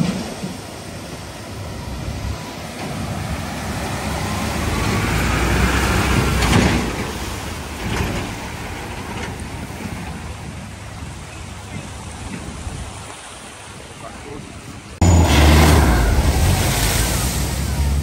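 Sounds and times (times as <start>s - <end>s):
water surging and splashing: 0.0s - 18.0s
truck diesel engine: 1.5s - 9.9s, 15.0s - 18.0s.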